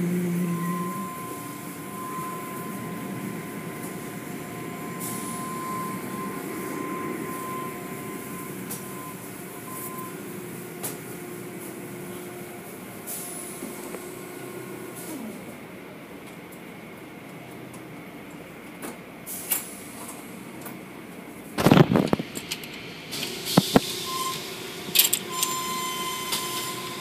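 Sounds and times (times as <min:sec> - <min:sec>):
thin steady whine: 0:00.0 - 0:16.1
car wash water spray and machinery: 0:00.0 - 0:27.0.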